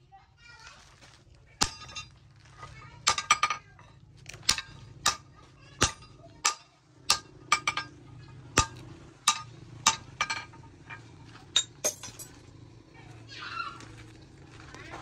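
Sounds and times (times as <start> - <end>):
hammer striking steel on anvil: 4.4 - 11.0, 11.6 - 12.3.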